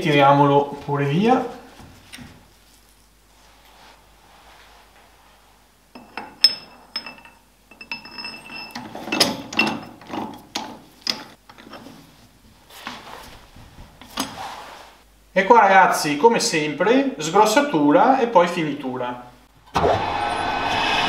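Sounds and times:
metal clinks and scrapes: 0:06.0 - 0:10.4.

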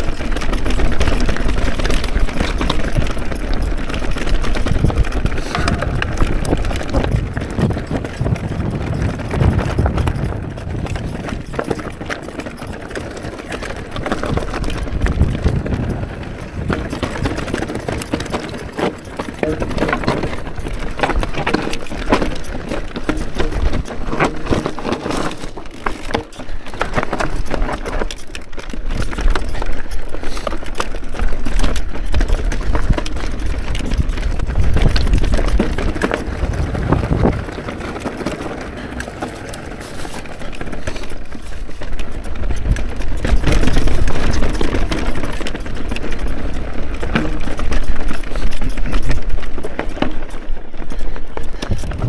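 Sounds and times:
wind rumbling on microphone: 0:00.0 - 0:24.3, 0:31.0 - 0:52.0
bike frame and chain clattering: 0:00.0 - 0:52.0
tyres on rock: 0:00.8 - 0:28.3, 0:43.2 - 0:52.0.

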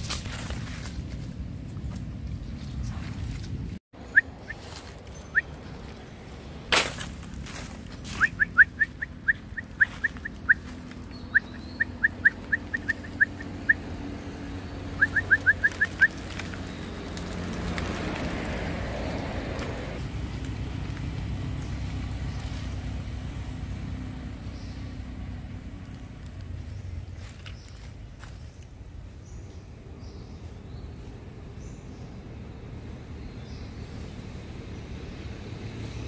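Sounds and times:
bird chirping: 0:04.0 - 0:06.3, 0:08.1 - 0:17.0, 0:29.2 - 0:35.0.

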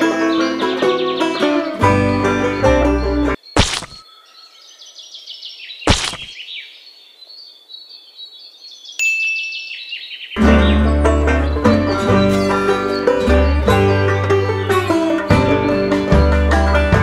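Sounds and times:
banjo music: 0:00.0 - 0:03.4, 0:10.4 - 0:17.0
high tinkling chime tones: 0:09.0 - 0:09.7.

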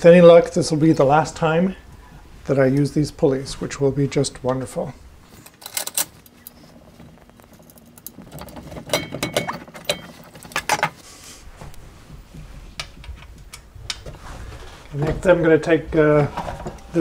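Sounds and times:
metal parts clicking and knocking: 0:05.4 - 0:06.6, 0:07.4 - 0:11.0.

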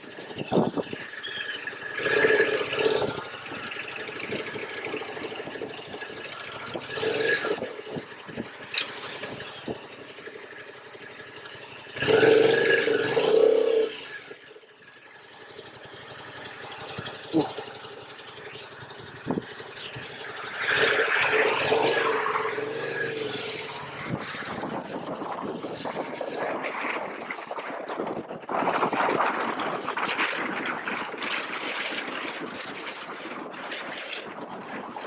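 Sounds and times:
wind rushing over microphone: 0:00.0 - 0:09.9, 0:19.1 - 0:35.0
motorcycle engine accelerating: 0:00.0 - 0:35.0.

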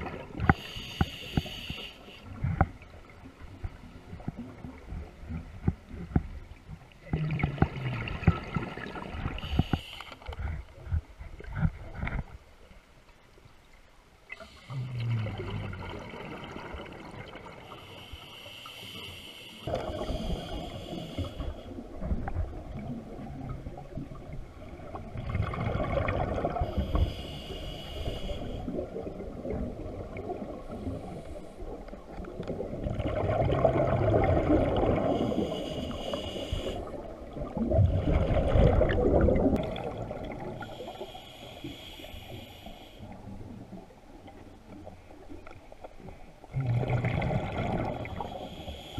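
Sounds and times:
exhaled bubbles underwater: 0:02.2 - 0:09.7, 0:14.4 - 0:18.0, 0:19.7 - 0:45.4, 0:46.4 - 0:48.9
diver regulator hissing: 0:17.8 - 0:21.6, 0:26.7 - 0:28.6, 0:35.2 - 0:36.9, 0:40.6 - 0:43.0, 0:48.1 - 0:48.9.

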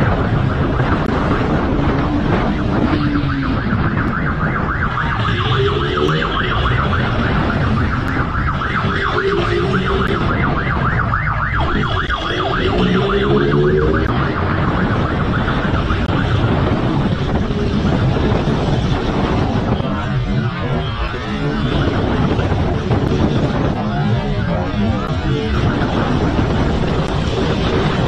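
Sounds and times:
police siren yelping: 0:00.0 - 0:28.0
road and wind rush: 0:00.0 - 0:28.0.

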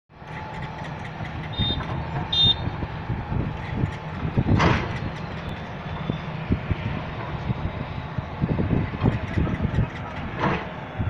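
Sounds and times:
diesel engine running: 0:00.1 - 0:11.0
rush of noise: 0:00.2 - 0:11.0
short high beeps: 0:01.5 - 0:02.6.

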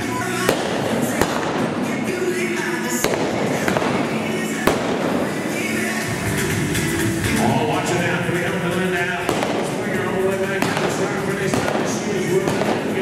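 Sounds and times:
music: 0:00.0 - 0:13.0
revolver shots: 0:00.4 - 0:02.2, 0:03.0 - 0:06.0, 0:09.2 - 0:13.0.

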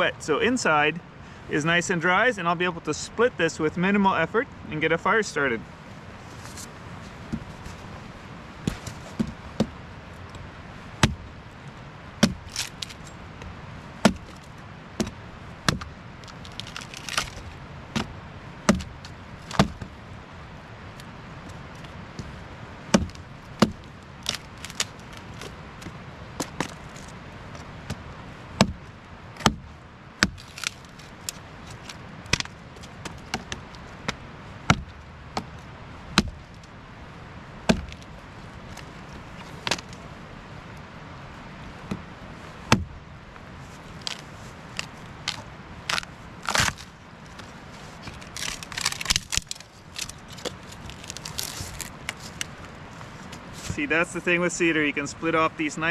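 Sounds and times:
axe chopping wood: 0:11.0 - 0:11.3, 0:12.2 - 0:13.0, 0:14.0 - 0:14.4, 0:15.0 - 0:15.9, 0:16.5 - 0:19.9, 0:22.9 - 0:24.9, 0:28.6 - 0:28.8, 0:29.4 - 0:30.8, 0:32.3 - 0:35.6, 0:36.2 - 0:36.4, 0:37.7 - 0:38.0, 0:42.7 - 0:43.0.

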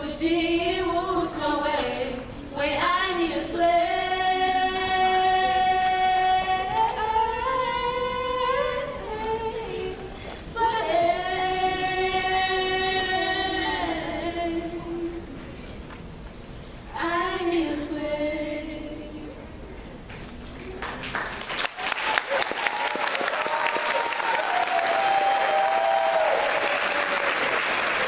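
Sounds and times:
women singing in harmony: 0:00.0 - 0:15.4, 0:16.9 - 0:19.5.

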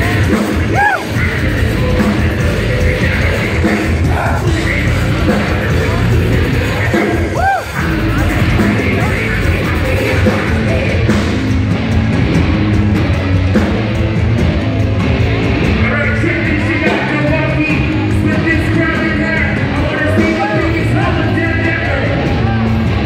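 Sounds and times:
person singing into microphone: 0:00.0 - 0:11.1
bass guitar: 0:00.0 - 0:23.0
distorted electric guitars: 0:00.0 - 0:23.0
drums: 0:00.0 - 0:23.0.

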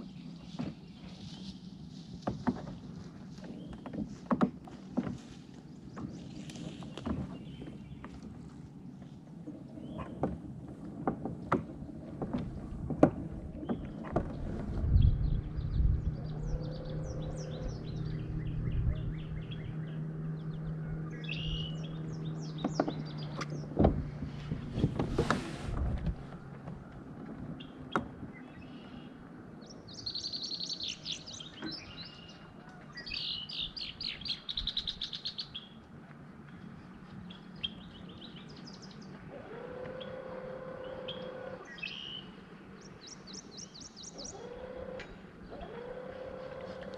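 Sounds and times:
small birds singing: 0:00.0 - 0:04.4, 0:05.0 - 0:10.4, 0:13.5 - 0:25.0, 0:27.5 - 0:46.9.

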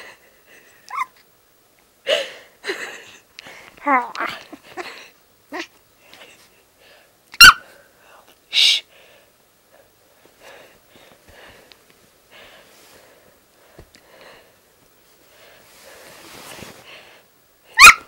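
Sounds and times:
puppy yipping: 0:07.4 - 0:07.6, 0:17.8 - 0:18.0
bedding rustling: 0:14.9 - 0:17.3.

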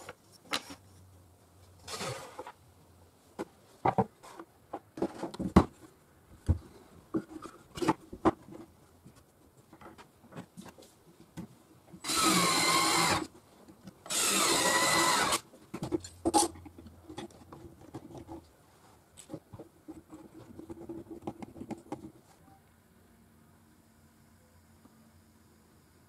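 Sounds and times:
cordless drill driving screws: 0:12.0 - 0:13.3, 0:14.1 - 0:15.4.

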